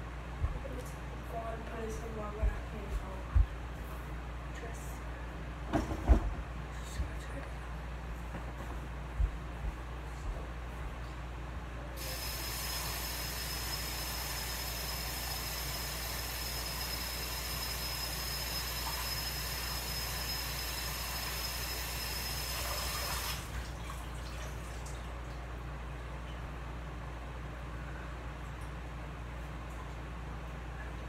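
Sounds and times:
faucet running: 12.0 - 25.0.

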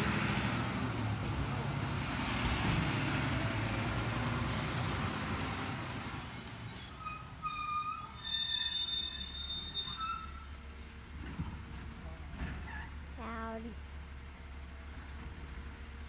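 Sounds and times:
truck engine rumble: 0.0 - 6.2, 11.0 - 16.0
high-pitched metallic squeal: 6.1 - 11.1.

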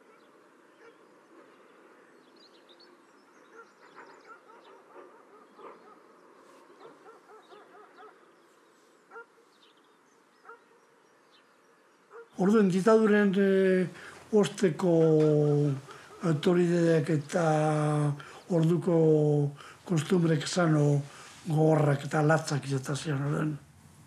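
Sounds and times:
birds chattering and honking: 0.0 - 23.4.

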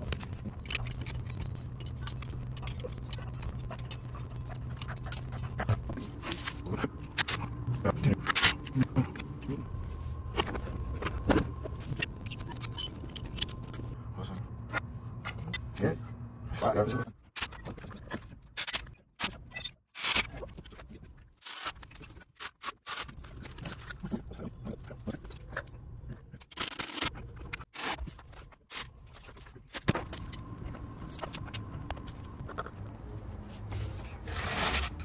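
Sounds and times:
metal tools clinking and scraping: 0.0 - 9.6, 11.8 - 13.9, 34.1 - 35.0.

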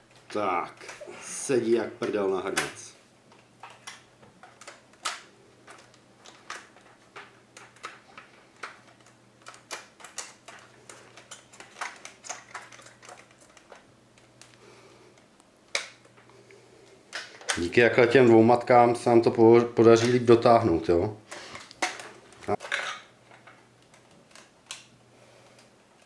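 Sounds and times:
faint steady hum: 0.0 - 26.0
plastic parts clicking: 2.0 - 14.6, 21.3 - 25.0.

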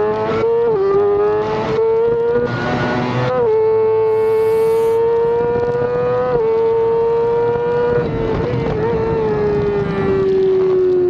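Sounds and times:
motorcycle engine revving high: 3.9 - 7.9.

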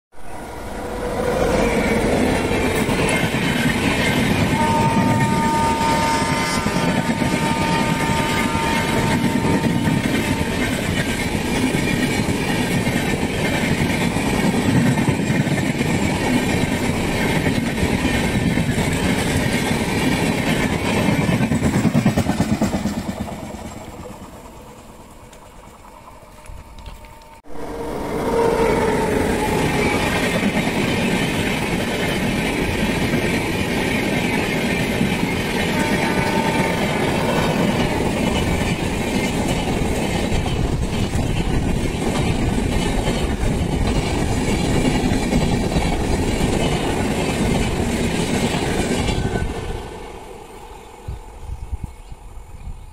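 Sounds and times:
train horn: 0.1 - 3.3, 4.1 - 10.7, 26.4 - 30.5, 35.5 - 38.2
train wheels rumbling on rails: 0.1 - 52.9.

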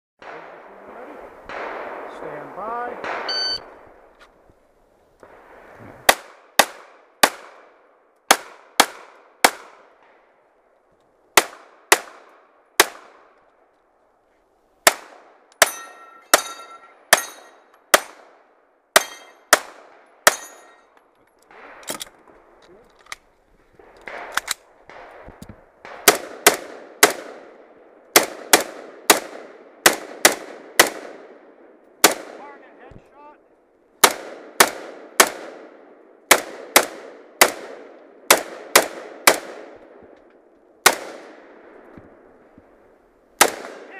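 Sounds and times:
pistol shots: 0.2 - 3.8, 6.0 - 10.2, 11.4 - 13.4, 14.8 - 20.8, 23.8 - 32.5, 34.0 - 39.8, 40.8 - 41.7, 43.4 - 43.9
rifle shots: 0.2 - 4.1, 5.3 - 10.2, 11.4 - 13.4, 23.8 - 32.6, 34.0 - 39.9, 40.8 - 41.8, 43.4 - 43.9
ringing of struck steel target: 3.3 - 3.6, 15.6 - 17.6, 19.0 - 19.4.

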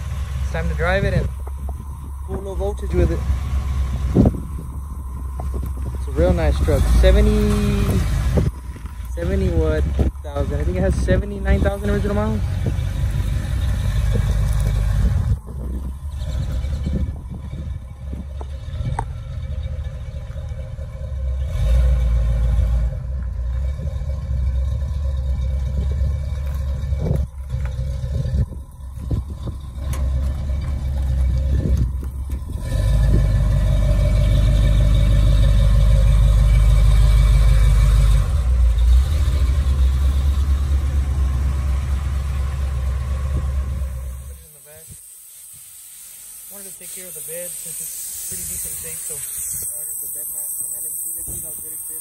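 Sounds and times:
truck engine running: 0.0 - 52.0.

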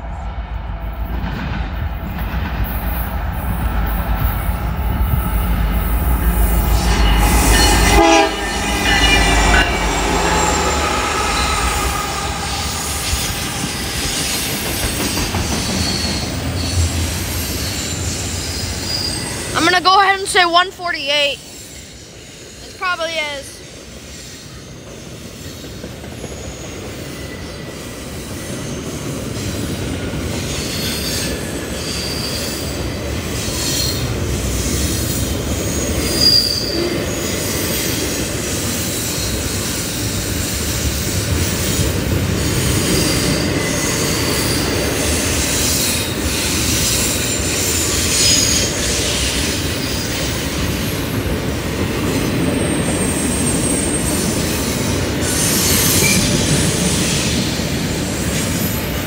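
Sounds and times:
train wheels rumbling on rail: 0.0 - 59.0
high wheel squeals: 4.9 - 19.8, 34.7 - 51.2.

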